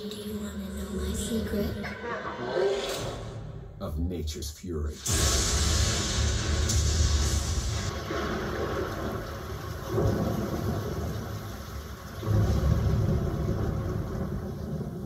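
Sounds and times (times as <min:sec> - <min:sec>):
steady rushing hiss: 0:05.0 - 0:13.8
deep thunder rumbles: 0:05.0 - 0:15.0.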